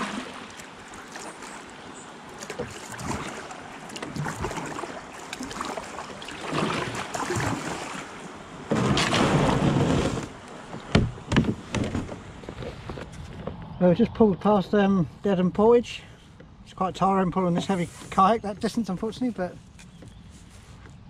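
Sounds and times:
paddle splashing water: 0.0 - 13.0
kayak hull scraping on bank: 2.4 - 13.5
knocks on kayak: 10.8 - 12.2.

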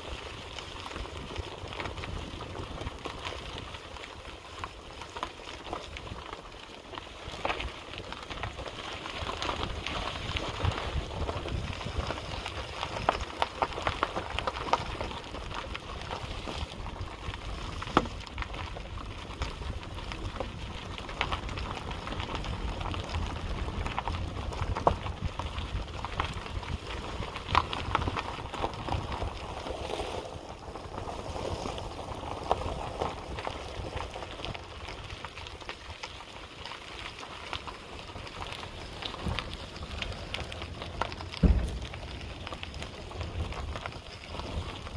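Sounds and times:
wind rumbling on microphone: 0.0 - 44.9
footsteps on grass and gravel: 38.8 - 43.8.

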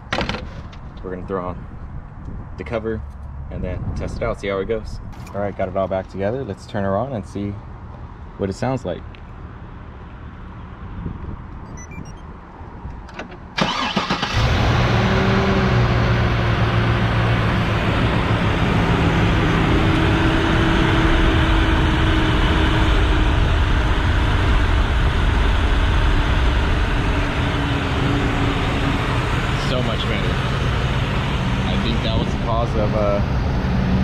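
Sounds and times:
engine cranking and starting: 13.1 - 14.9.

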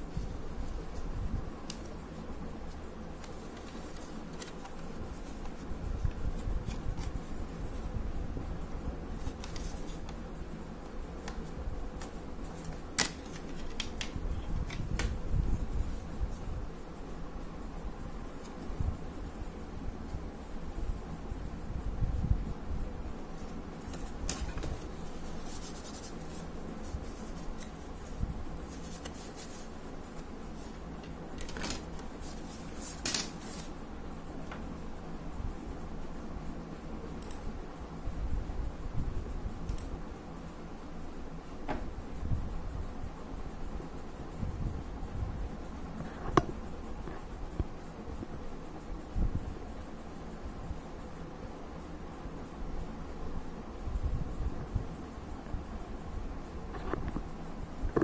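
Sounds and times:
plastic rubbing against plastic: 23.4 - 33.8.

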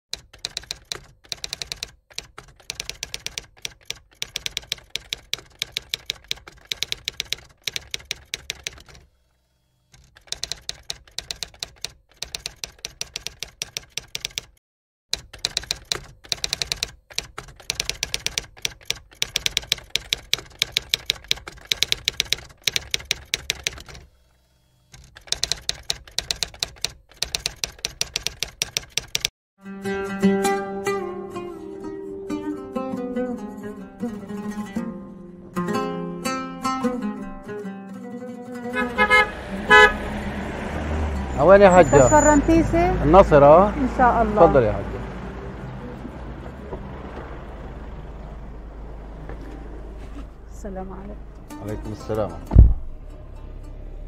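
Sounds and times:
typewriter keys clacking: 0.1 - 9.0, 10.0 - 14.6, 15.2 - 24.0, 25.0 - 29.3.

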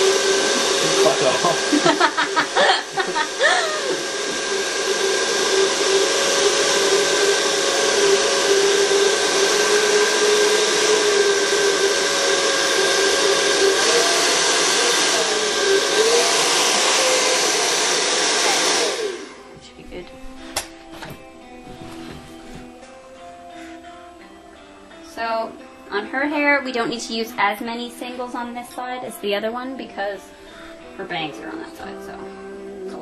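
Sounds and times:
hair dryer running: 0.0 - 24.2.

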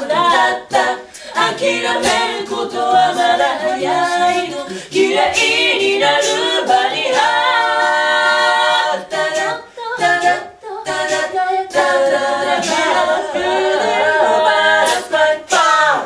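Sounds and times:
group singing a cappella: 0.0 - 16.0.

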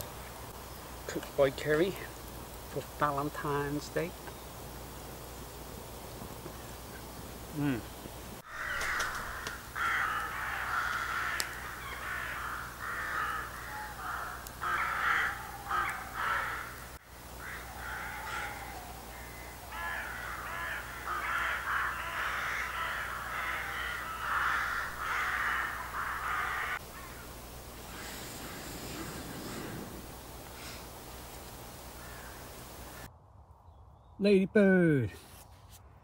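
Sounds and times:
crows cawing: 8.4 - 33.1.

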